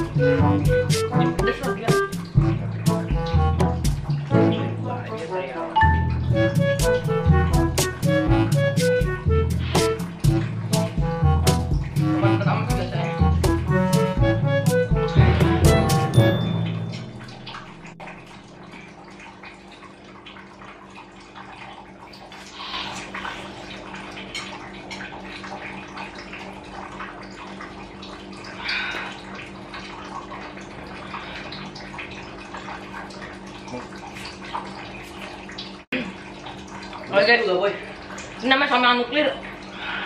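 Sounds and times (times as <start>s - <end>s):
low hum: 0.0s - 5.2s, 5.8s - 18.9s.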